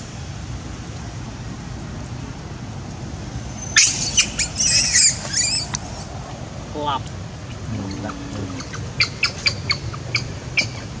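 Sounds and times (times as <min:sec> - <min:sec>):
low outdoor background noise: 0:00.0 - 0:11.0
monkeys squealing: 0:03.8 - 0:05.7, 0:07.8 - 0:10.9.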